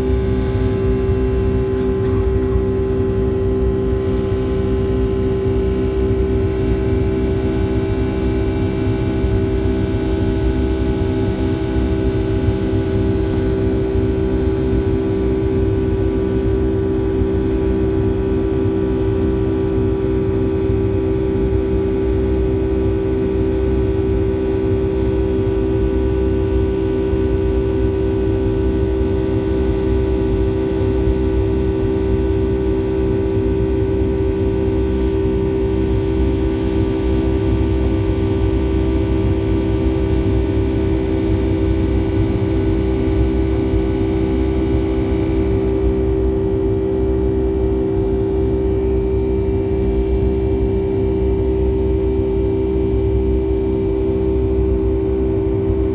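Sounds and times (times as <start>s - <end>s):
airplane engines droning: 0.0s - 21.3s, 32.6s - 55.9s.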